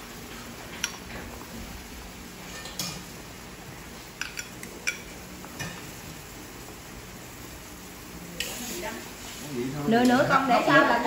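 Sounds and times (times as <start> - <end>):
tongs clinking on plate and tray: 2.5 - 3.1, 4.2 - 5.8.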